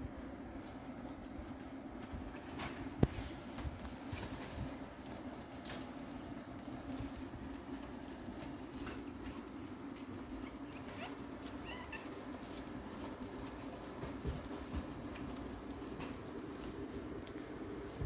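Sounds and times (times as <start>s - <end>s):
paws clicking on wooden floor: 0.1s - 18.0s
puppy squeaks: 10.4s - 12.1s.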